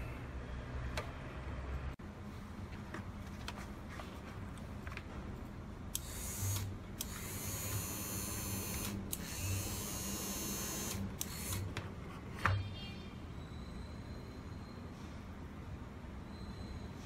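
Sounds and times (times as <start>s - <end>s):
small electric motors whirring: 6.0s - 11.7s.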